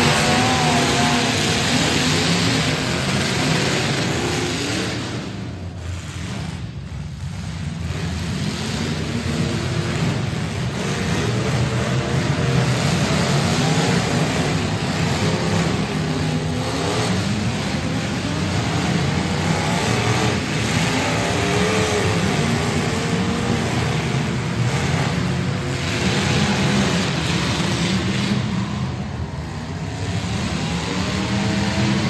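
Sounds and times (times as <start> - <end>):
car engines revving: 0.0 - 32.0.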